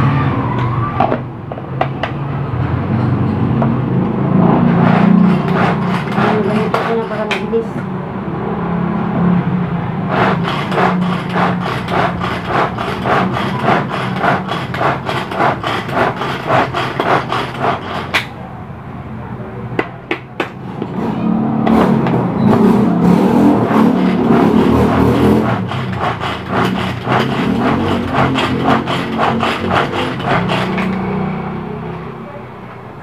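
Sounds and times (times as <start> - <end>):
utensil scraping in a bowl: 4.6 - 7.6, 10.1 - 18.3, 23.5 - 31.2.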